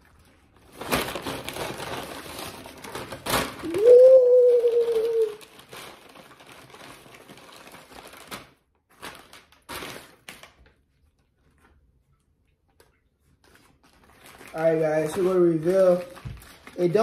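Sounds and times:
paper bag rustling: 0:00.5 - 0:10.8, 0:13.4 - 0:17.0.

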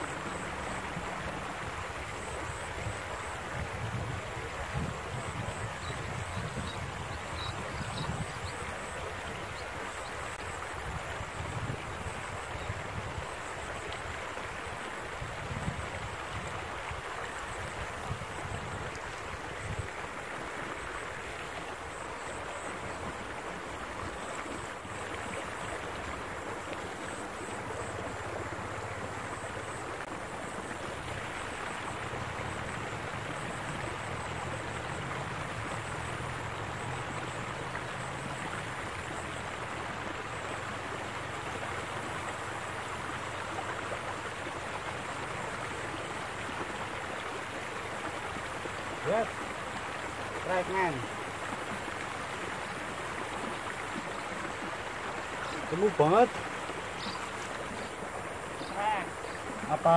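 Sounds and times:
water rushing along concrete channel: 0:00.0 - 0:59.9
wind gusting on microphone: 0:02.8 - 0:08.5.

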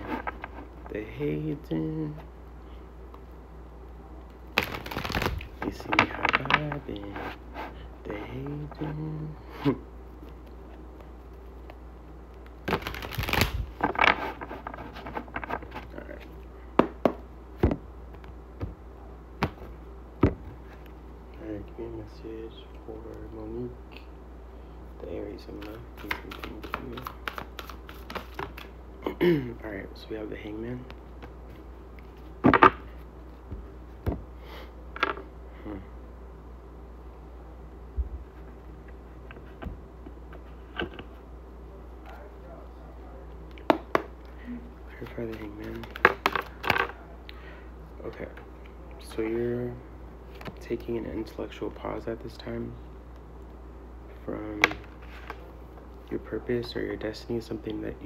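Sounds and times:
low steady hum: 0:00.0 - 0:58.0
cards riffling: 0:04.5 - 0:07.2, 0:12.4 - 0:15.9, 0:25.6 - 0:28.8, 0:45.0 - 0:46.9
cards clicking against table: 0:25.6 - 0:28.7.

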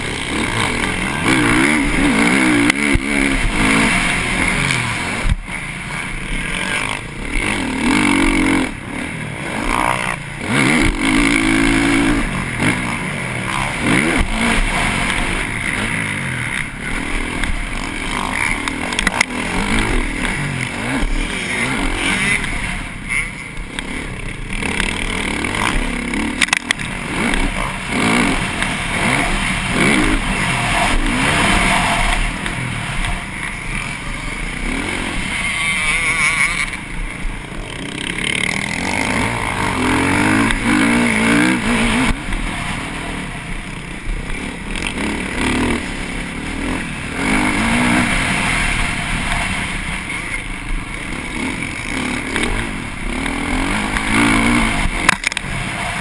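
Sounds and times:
motocross engine revving hard: 0:00.0 - 0:56.0.

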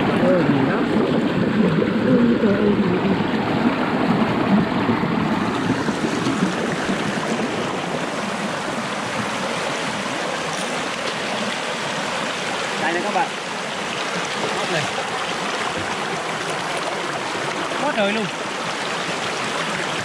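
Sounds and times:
stream rushing over rocks: 0:00.0 - 0:20.0.

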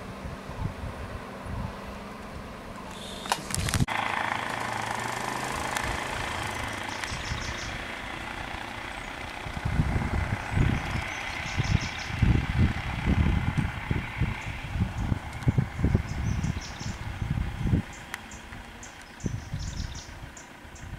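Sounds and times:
engine idling: 0:01.5 - 0:20.9
low rumbles and thumps: 0:09.3 - 0:19.8.

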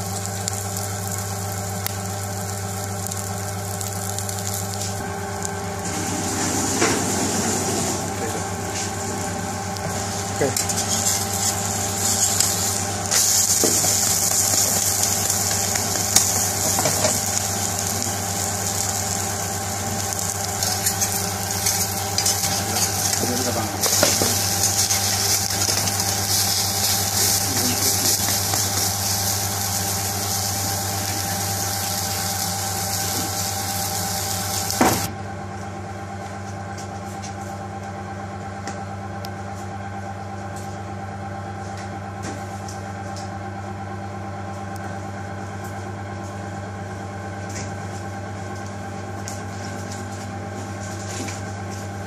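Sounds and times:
omelette sizzling in a pan: 0:00.0 - 0:07.7, 0:08.8 - 0:35.1.

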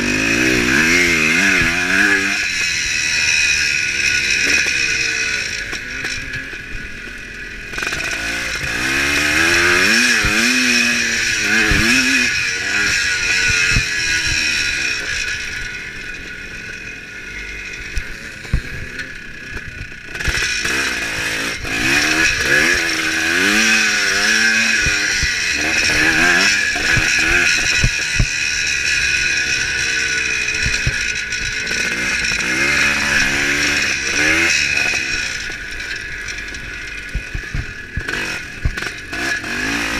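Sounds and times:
two-stroke motorcycle engine revving: 0:00.0 - 0:39.9
bike knocking over bumps: 0:37.1 - 0:38.9.

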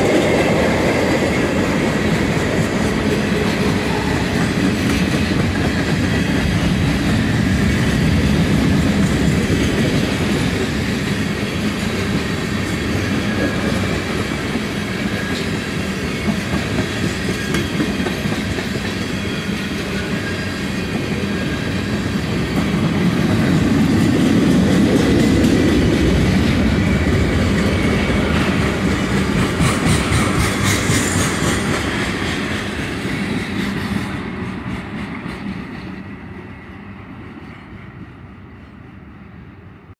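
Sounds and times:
freight train rolling past: 0:00.0 - 0:39.9
wheels clacking over rail joints: 0:22.5 - 0:36.0.

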